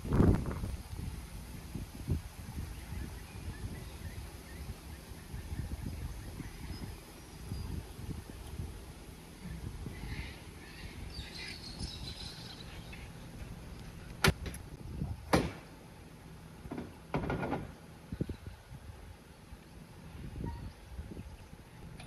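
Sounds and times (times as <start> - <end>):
steady low rumble: 0.0 - 17.1
sharp loud knocks: 15.3 - 15.7, 16.7 - 17.7.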